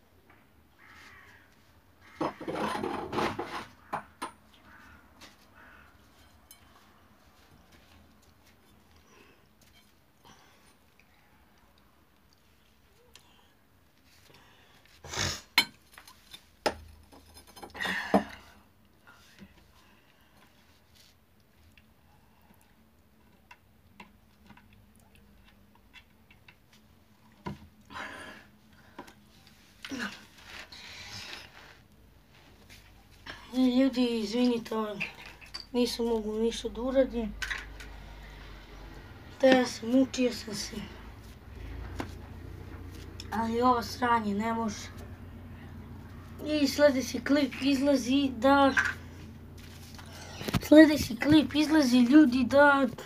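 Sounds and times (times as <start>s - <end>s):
hard objects clattering and scraping: 2.1s - 4.4s.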